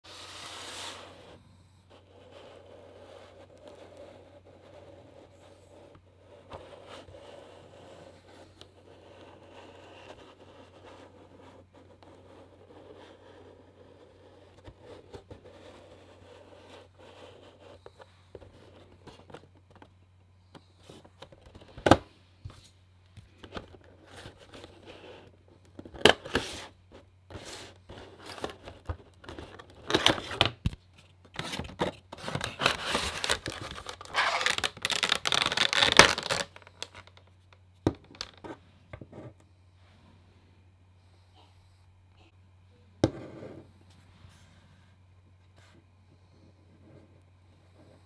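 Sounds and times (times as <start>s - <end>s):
clicks and scrapes of packaging: 27.4s - 37.3s
plastic rustling and crinkling: 27.4s - 37.3s, 37.9s - 38.5s.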